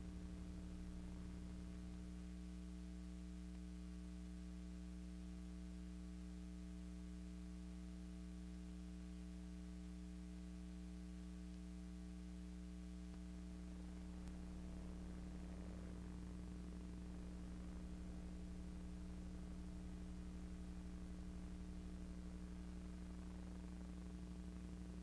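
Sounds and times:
electrical mains hum: 0.0 - 25.0
faint hiss: 10.6 - 25.0.

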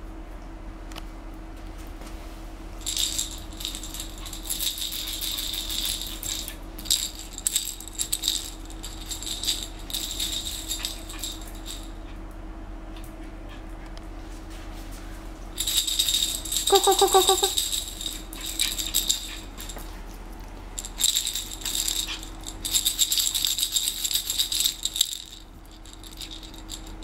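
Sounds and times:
plush toy rattle shaking: 2.8 - 12.1, 15.5 - 20.0, 20.6 - 27.0.

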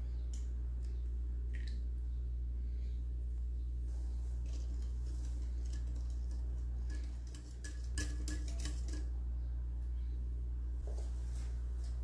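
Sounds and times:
steady low hum: 0.0 - 12.0
whisk clicking against glass bowl: 4.8 - 9.1.

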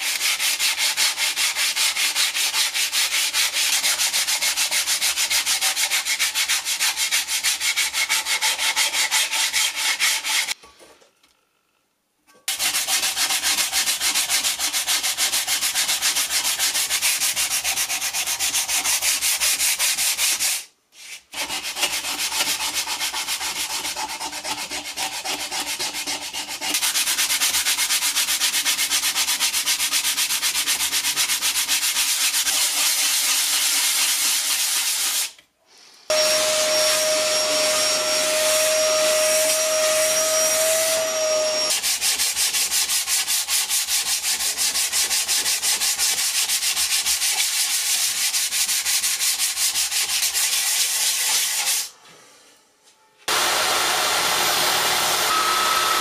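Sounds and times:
sandpaper rasping on steel blade: 0.0 - 10.6, 12.5 - 35.4, 36.2 - 51.9.

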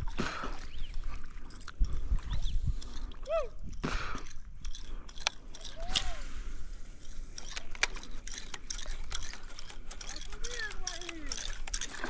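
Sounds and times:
fishing gear clicks and knocks: 0.5 - 12.0
wind rumble on microphone: 1.7 - 3.8.

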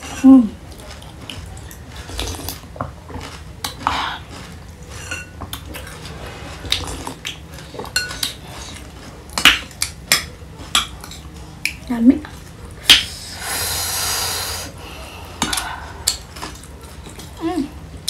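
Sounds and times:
spoon clinking and scraping plate: 5.0 - 6.0.

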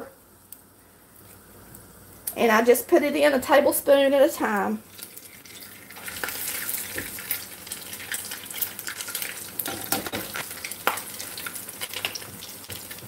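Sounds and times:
batter sizzling in hot oil: 4.3 - 13.0.

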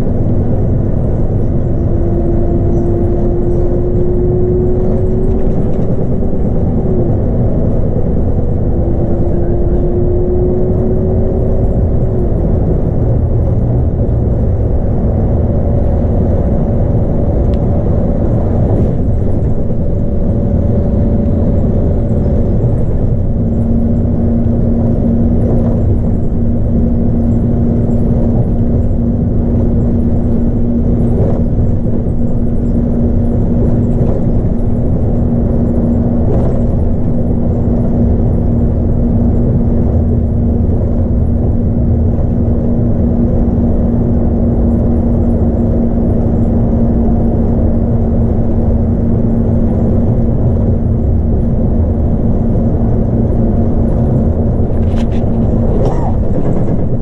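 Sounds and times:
bus engine and road rumble: 0.0 - 57.0.

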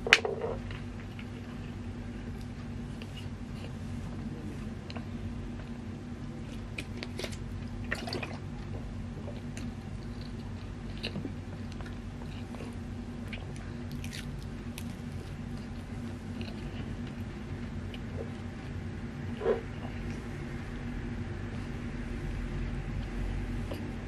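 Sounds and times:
steady low hum: 0.0 - 24.0
chewing pastry: 6.4 - 20.4.

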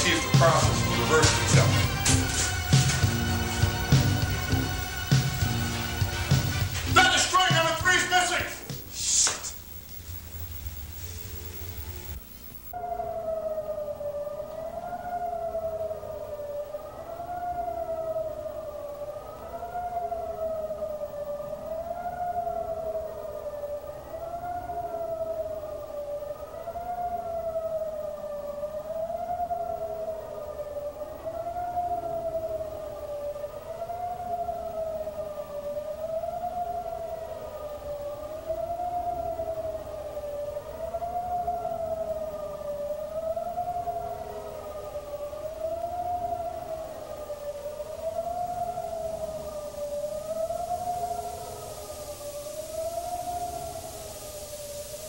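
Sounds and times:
low background hiss: 0.0 - 55.0
siren-like wailing tone: 0.0 - 55.0.

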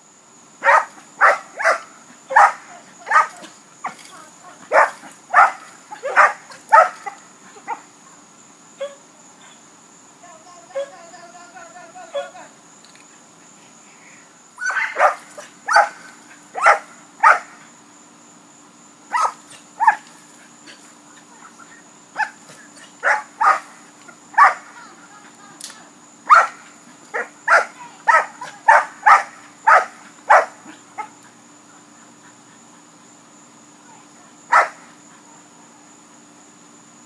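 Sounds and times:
dog barking: 0.6 - 3.5, 4.7 - 7.8, 14.6 - 16.0, 16.6 - 17.6, 19.1 - 20.0, 22.2 - 22.4, 23.0 - 23.7, 24.4 - 24.7, 26.3 - 31.2, 34.5 - 34.9.

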